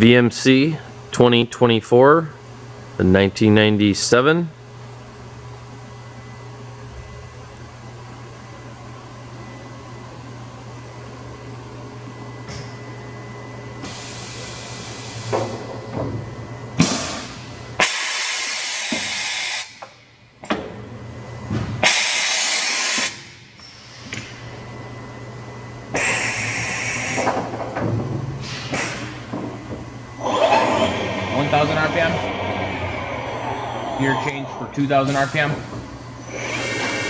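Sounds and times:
machining center humming: 0:23.2 - 0:37.0.

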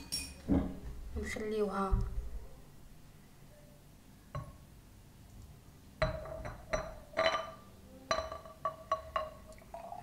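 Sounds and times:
glass jar clinking: 0:00.0 - 0:00.5, 0:06.0 - 0:10.0.

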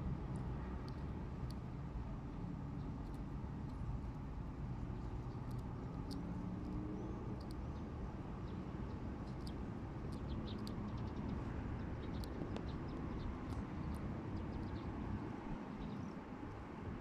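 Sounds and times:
steady low rumble: 0:00.0 - 0:17.0
small birds chirping: 0:04.8 - 0:15.0.

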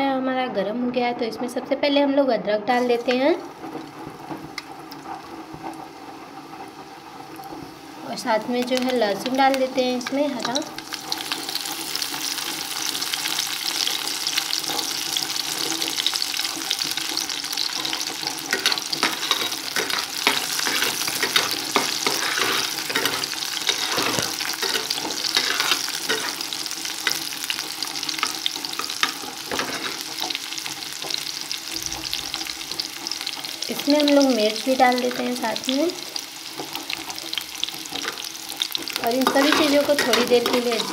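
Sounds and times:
food sizzling in hot oil: 0:02.6 - 0:40.9
spoon scraping pan: 0:17.6 - 0:31.2, 0:36.6 - 0:40.9.

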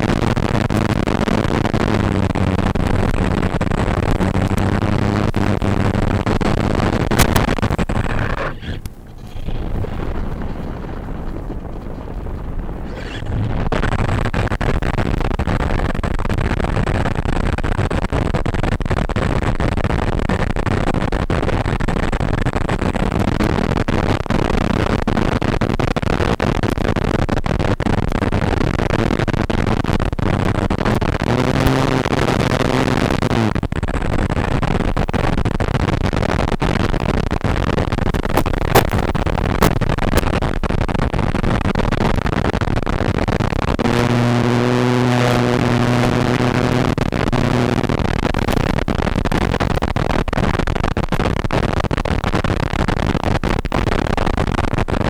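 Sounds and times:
loud wind rush: 0:02.7 - 0:16.6.

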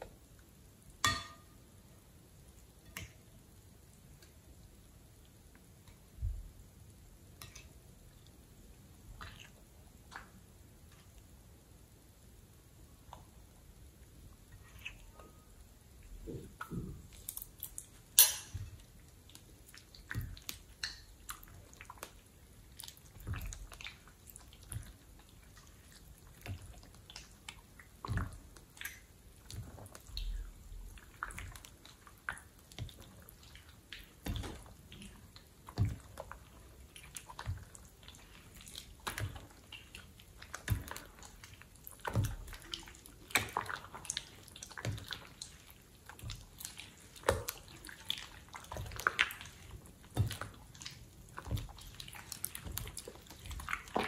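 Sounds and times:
metal utensil in glass bowl: 0:01.0 - 0:01.5, 0:18.2 - 0:18.6
slime squelching: 0:09.0 - 0:11.2, 0:14.5 - 0:54.0.

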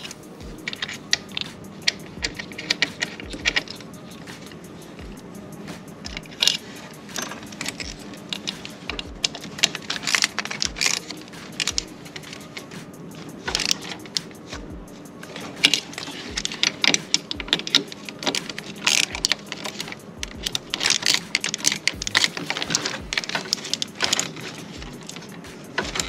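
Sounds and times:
ratchet wrench clicking: 0:00.0 - 0:26.0.

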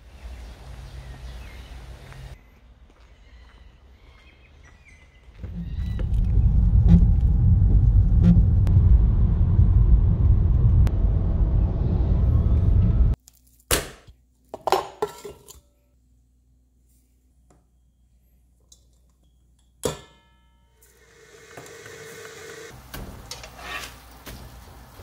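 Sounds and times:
low rumble inside car: 0:05.6 - 0:13.2.

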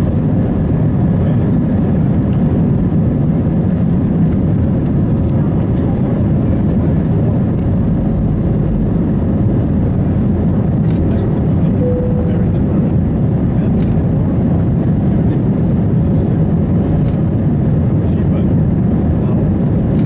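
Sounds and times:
jet engines rumbling in cabin: 0:00.0 - 0:20.0.

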